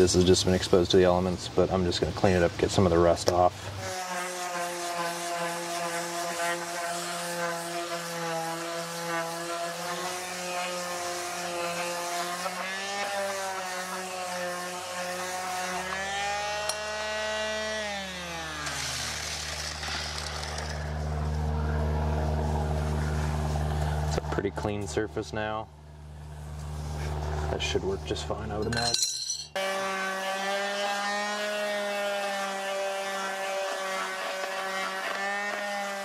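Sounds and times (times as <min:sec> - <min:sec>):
power sander on steel: 0:03.0 - 0:25.1, 0:29.6 - 0:36.0.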